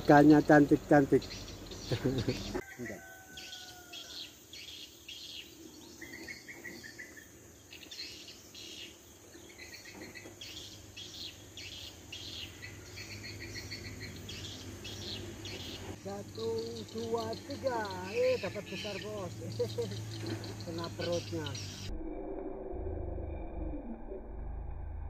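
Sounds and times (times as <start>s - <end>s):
birds chirping: 0.0s - 21.9s
insects chirping: 0.0s - 21.9s.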